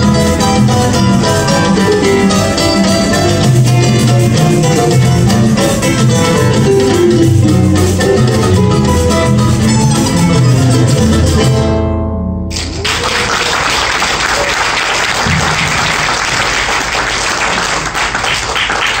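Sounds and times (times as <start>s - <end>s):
acoustic guitars and plucked strings: 0.0s - 12.6s
audience applause: 12.5s - 19.0s.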